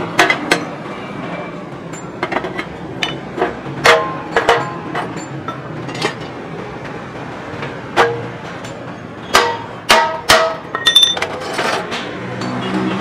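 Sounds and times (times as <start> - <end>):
sheet metal parts knocking and clanking: 0.0 - 0.8, 1.8 - 12.7
short metallic ring: 10.7 - 11.3.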